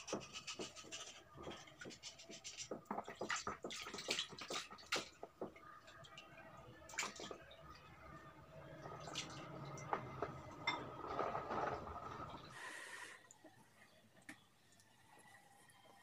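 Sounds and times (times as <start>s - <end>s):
water sloshing and dripping: 0.0s - 12.6s.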